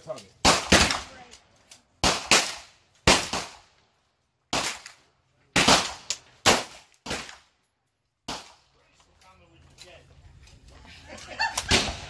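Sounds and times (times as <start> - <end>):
gunshots: 0.4 - 1.3, 2.0 - 3.7, 4.5 - 7.5, 8.2 - 8.6, 11.6 - 12.0.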